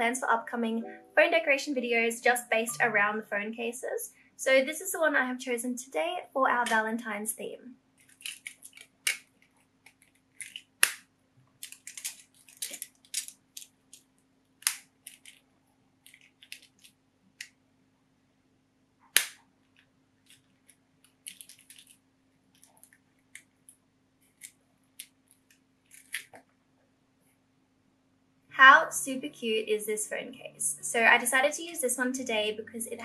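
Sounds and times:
sharp plastic snaps: 0:08.0 - 0:15.4, 0:19.0 - 0:22.0
plastic phone case clicking: 0:08.1 - 0:11.0, 0:11.6 - 0:14.0, 0:14.6 - 0:15.4, 0:19.1 - 0:19.4, 0:21.0 - 0:22.0.

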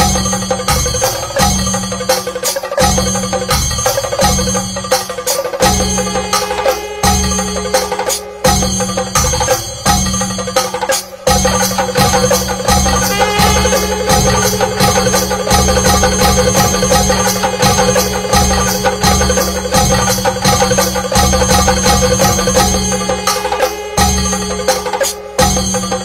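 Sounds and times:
cymbal strokes: 0:00.0 - 0:26.0
drums beaten in rhythm: 0:00.0 - 0:26.0
reed pipe melody: 0:05.4 - 0:26.0.

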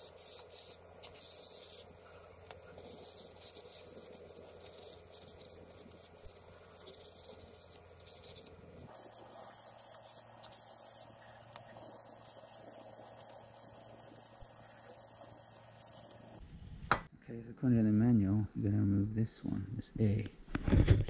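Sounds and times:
aerosol spray hissing bursts: 0:00.0 - 0:02.0, 0:02.6 - 0:16.3.

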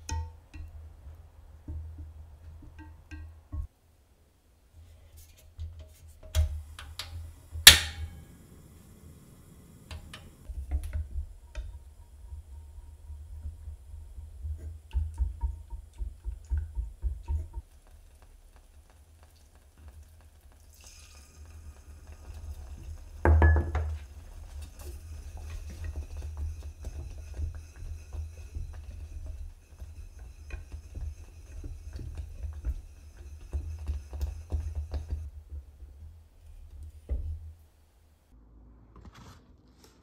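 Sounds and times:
whisk beating in a saucepan: 0:10.4 - 0:37.4.

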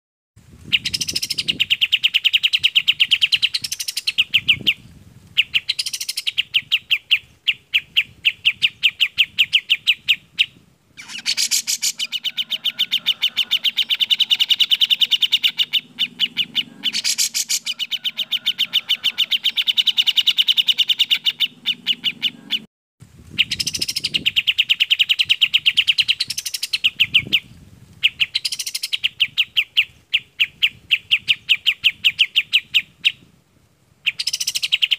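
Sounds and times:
sweeping rising bird calls: 0:00.7 - 0:04.8, 0:11.0 - 0:22.7.

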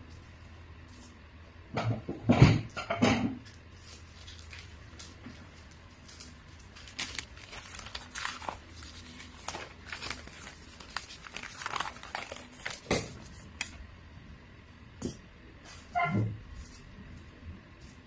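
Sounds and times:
wrapping paper rustling: 0:03.4 - 0:13.8.

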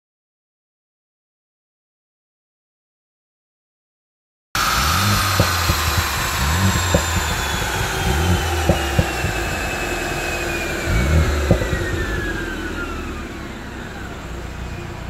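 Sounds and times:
exhaust pops and cracks: 0:04.6 - 0:12.5
car engine revving: 0:04.6 - 0:15.0
high whine: 0:04.6 - 0:15.0.

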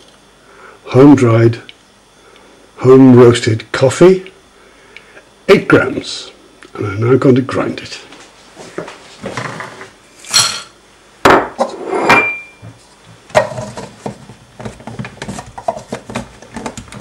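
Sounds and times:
loud knocks on wooden worktop: 0:11.2 - 0:11.7.

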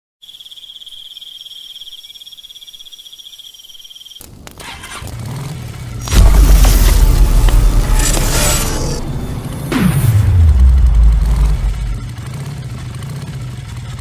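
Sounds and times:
high-pitched insect trill: 0:00.2 - 0:04.2.

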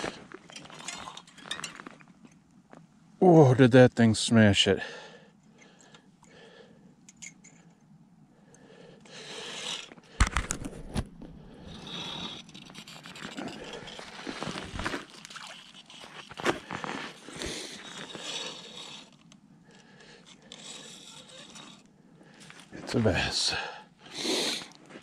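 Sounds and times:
snow and ice crunching: 0:13.0 - 0:19.1.

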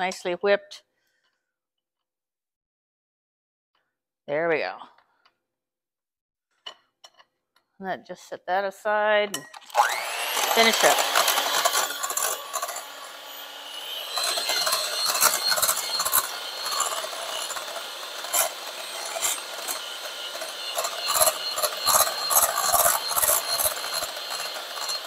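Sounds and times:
electric hand mixer whine: 0:09.6 - 0:25.0.

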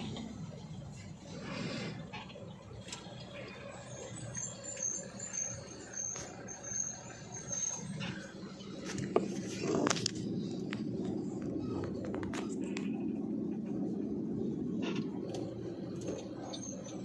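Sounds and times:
diesel truck engine running: 0:00.0 - 0:17.0
faint high-pitched chirping: 0:02.2 - 0:10.5, 0:15.4 - 0:17.0.

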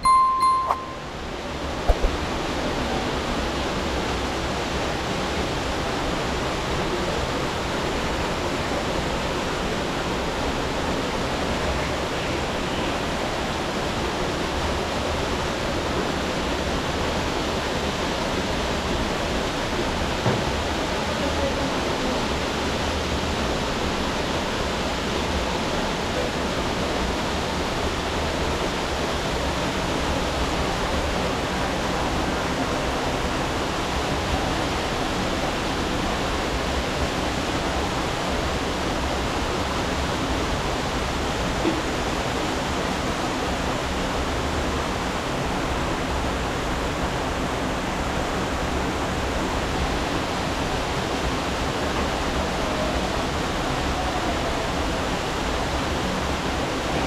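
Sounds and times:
brief knock: 0:01.9 - 0:02.2
river water rushing: 0:01.9 - 0:57.0.

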